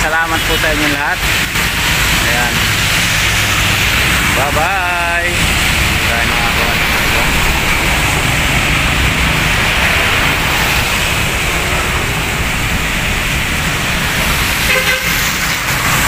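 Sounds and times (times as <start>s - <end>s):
low traffic rumble: 0.0s - 16.0s
tyres hissing on wet road: 0.0s - 16.0s.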